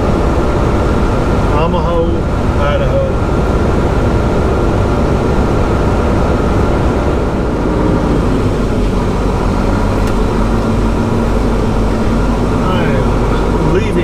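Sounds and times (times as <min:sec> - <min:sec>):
truck engine and road rumble: 0:00.0 - 0:14.0.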